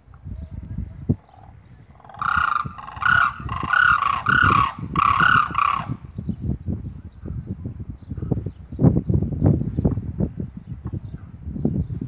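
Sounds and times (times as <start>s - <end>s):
crane harsh calls: 1.3s - 6.0s.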